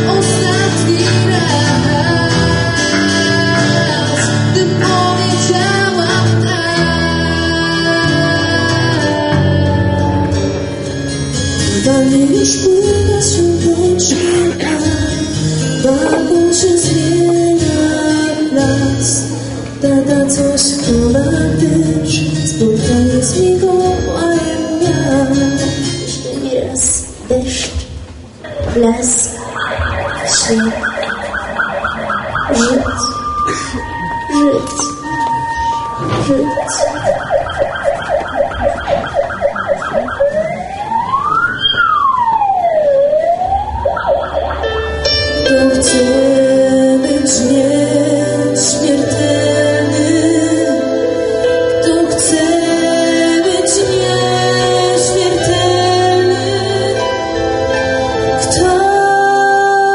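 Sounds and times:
woman singing into microphone: 0.0 - 10.8, 11.6 - 27.9, 28.6 - 29.4, 30.2 - 31.0, 32.5 - 37.0, 45.4 - 59.9
electronic emergency siren: 29.4 - 45.2
instrumental accompaniment: 29.6 - 59.9.

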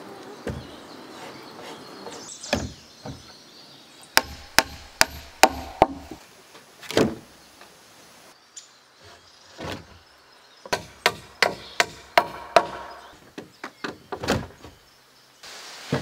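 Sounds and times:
dull wooden knocks: 4.2 - 6.2, 10.7 - 14.8
hammer striking a log: 4.2 - 6.2, 10.7 - 13.1.

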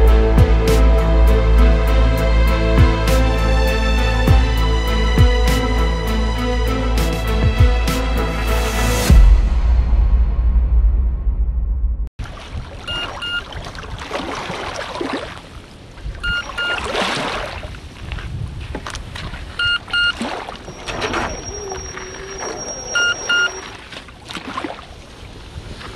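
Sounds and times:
background music: 0.0 - 10.6
water lapping and splashing: 12.2 - 25.9
double electronic beep: 12.9 - 13.4, 16.2 - 16.8, 19.6 - 20.2, 21.3 - 23.7
wind noise: 17.5 - 19.8.

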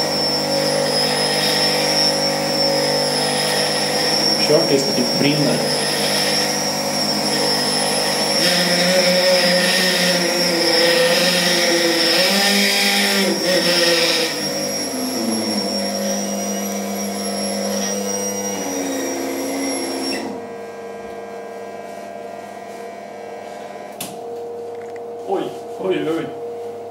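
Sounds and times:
immersion blender motor whining: 0.0 - 25.0.

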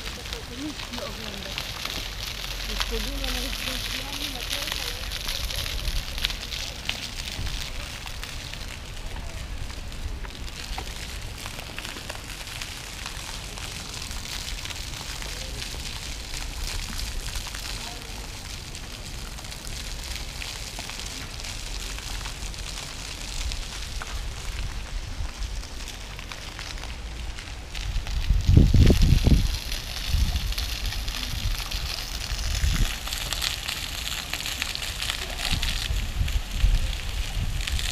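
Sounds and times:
crackling hiss: 0.0 - 37.9
fountain water jets splashing: 0.0 - 37.9
wind buffeting microphone: 27.7 - 33.5, 34.1 - 37.9.

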